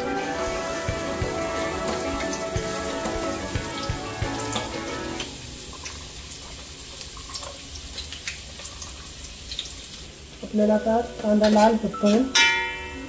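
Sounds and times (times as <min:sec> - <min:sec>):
onion sizzling in hot oil: 0:00.0 - 0:11.9
oil crackles and pops: 0:03.5 - 0:10.5.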